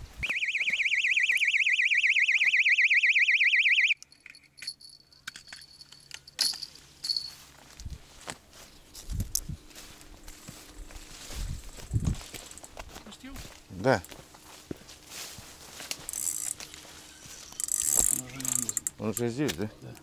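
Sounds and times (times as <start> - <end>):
electronic bite alarm warbling: 0.2 - 4.0.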